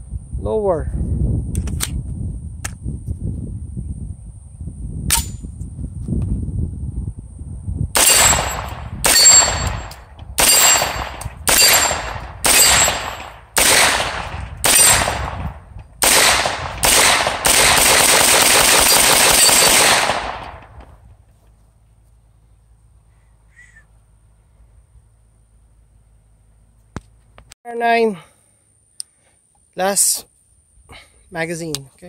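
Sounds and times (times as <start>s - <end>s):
rifle gunshots: 8.0s - 20.8s.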